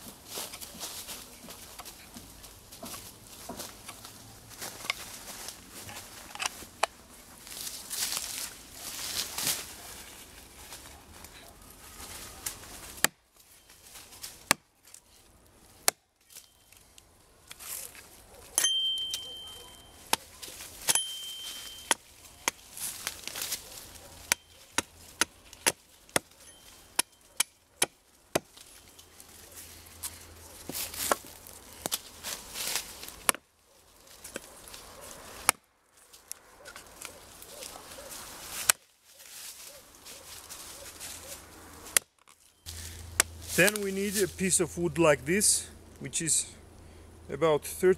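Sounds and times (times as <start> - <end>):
hatchet chopping a branch: 12.9 - 13.2, 14.3 - 15.0, 15.8 - 16.0, 20.1 - 23.6, 24.2 - 28.8, 33.0 - 33.5, 35.4 - 35.7, 41.9 - 43.8.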